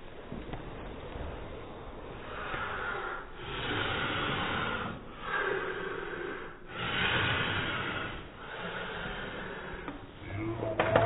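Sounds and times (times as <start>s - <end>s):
child breathing heavily: 2.2s - 10.2s.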